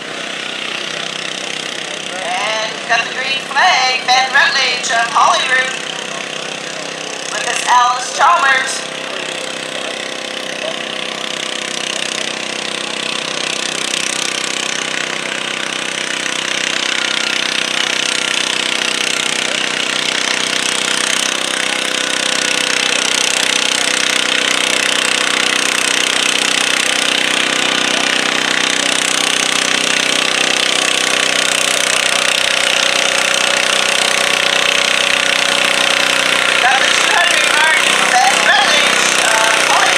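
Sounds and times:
tractor engine under load: 0.0s - 39.9s.

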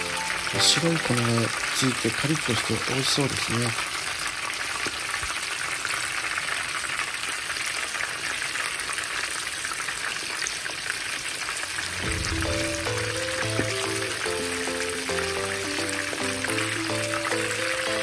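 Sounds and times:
background music: 0.0s - 2.1s, 11.8s - 18.0s
meat deep-frying in oil: 0.0s - 18.0s.

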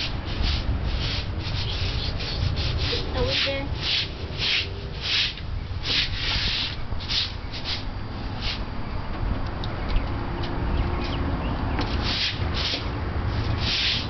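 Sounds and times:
broom sweeping concrete floor: 0.0s - 8.8s, 11.8s - 14.0s.

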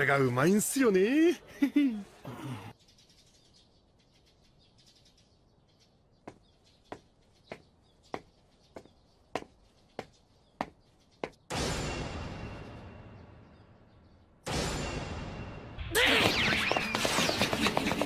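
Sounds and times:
footsteps in sneakers on hard ground: 6.3s - 11.4s.

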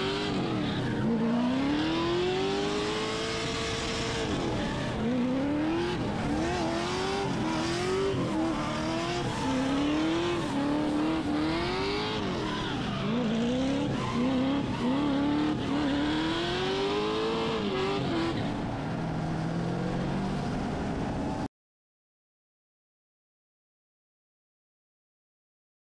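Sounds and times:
car engine revving hard: 0.0s - 18.5s
tyre squeal: 12.1s - 15.8s.

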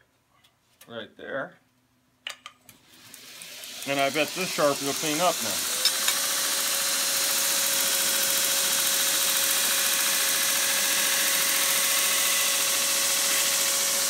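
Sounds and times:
belt grinder whining: 2.8s - 14.0s
abrasive belt hissing on steel: 3.0s - 14.0s.

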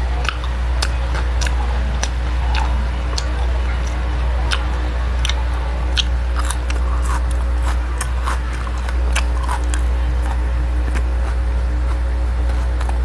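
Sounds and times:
steady low hum: 0.0s - 13.0s
wet chewing sounds: 0.0s - 13.0s.

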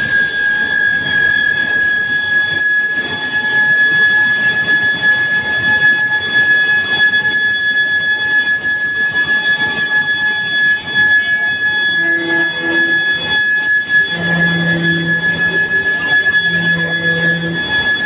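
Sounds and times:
high-pitched induction coil whine: 0.0s - 18.0s
machinery noise: 8.7s - 18.0s.

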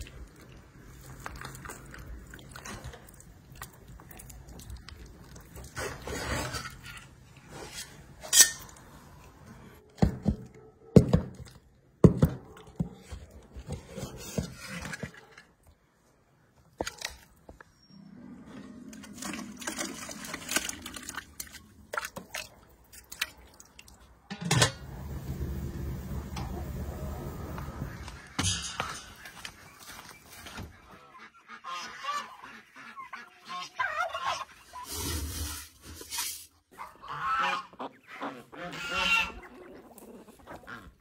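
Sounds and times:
cookware clinking and knocking: 24.3s - 24.9s.

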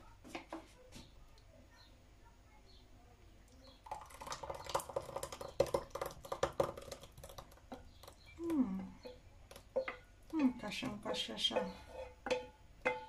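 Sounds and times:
thick sauce pouring into jug: 3.8s - 8.3s.

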